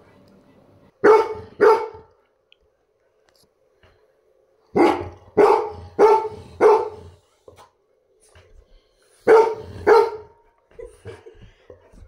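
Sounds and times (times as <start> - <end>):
dog barking: 1.0 - 2.1, 4.7 - 7.2, 9.2 - 10.4.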